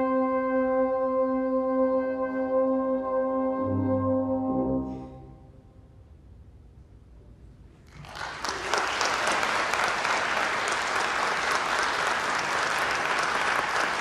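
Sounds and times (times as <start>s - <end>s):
audience applause: 7.9s - 14.0s.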